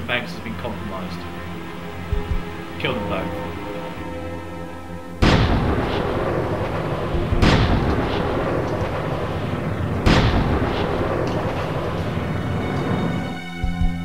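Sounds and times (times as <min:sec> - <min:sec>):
steady dense rumble: 0:00.0 - 0:14.0
heavy booms: 0:05.2 - 0:13.8.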